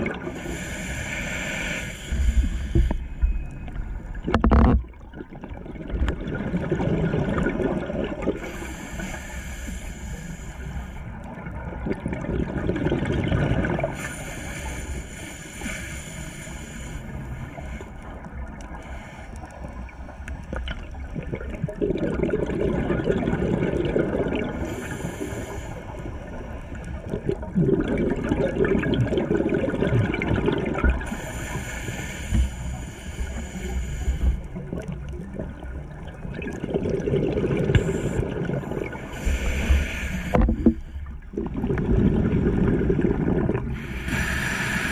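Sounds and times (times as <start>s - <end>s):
exhaled bubbles gurgling underwater: 0.0s - 44.9s
regulator inhale hissing: 0.3s - 3.2s, 8.4s - 11.3s, 13.9s - 20.4s, 24.6s - 27.0s, 31.0s - 34.9s, 37.7s - 41.2s, 43.6s - 44.9s.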